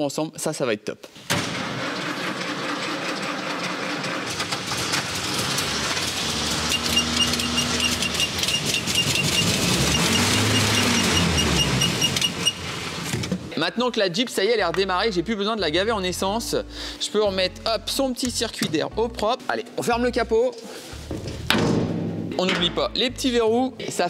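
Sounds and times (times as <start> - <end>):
car engine running: 4.1 - 13.0.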